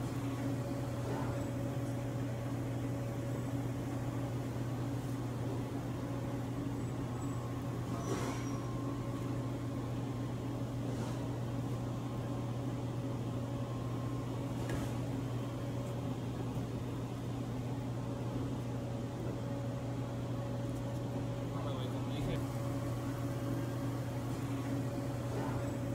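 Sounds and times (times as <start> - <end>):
electrical hum of kitchen equipment: 0.0 - 25.9.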